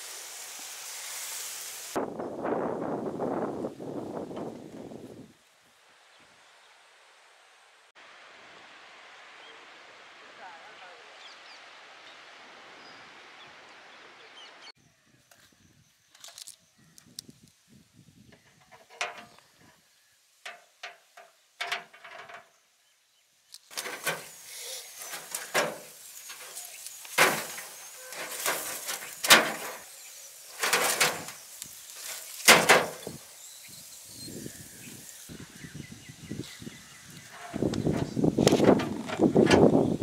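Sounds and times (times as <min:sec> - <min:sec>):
wind noise: 0:01.9 - 0:05.4, 0:15.0 - 0:19.8, 0:30.6 - 0:40.0.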